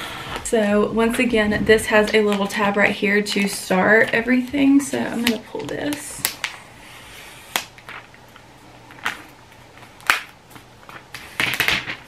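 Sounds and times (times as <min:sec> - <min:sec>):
paper crackling: 0:00.3 - 0:06.6.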